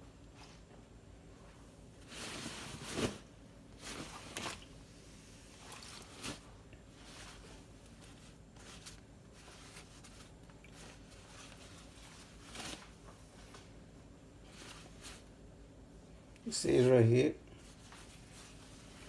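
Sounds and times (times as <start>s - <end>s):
wet jacket rustling and squishing: 2.0s - 4.8s, 5.5s - 13.1s.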